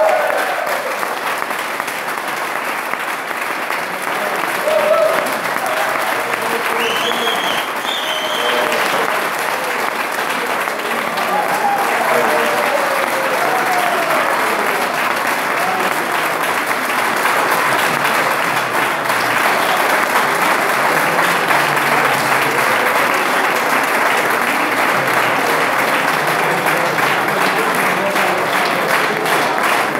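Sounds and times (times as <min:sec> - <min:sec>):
audience applauding: 0:00.0 - 0:29.9
voices: 0:04.0 - 0:16.4.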